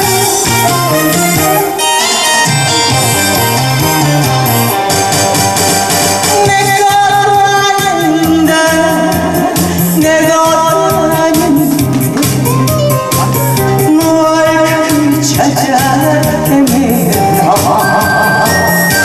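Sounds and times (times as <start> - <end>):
woman singing with vibrato: 0.0 - 2.9, 6.2 - 12.2, 13.2 - 19.0
accompaniment track with beat: 0.0 - 19.0.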